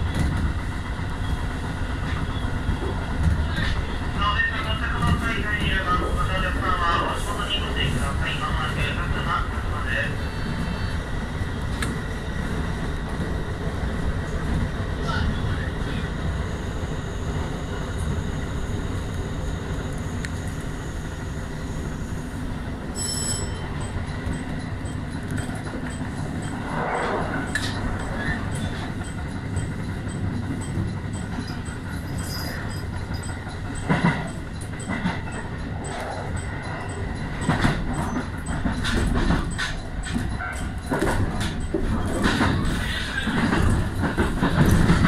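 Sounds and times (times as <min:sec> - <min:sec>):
train wheels rumbling on rails: 0:00.0 - 0:45.0
level crossing warning bell: 0:04.2 - 0:11.5, 0:15.4 - 0:45.0
wheels clicking over rail joints: 0:22.9 - 0:45.0.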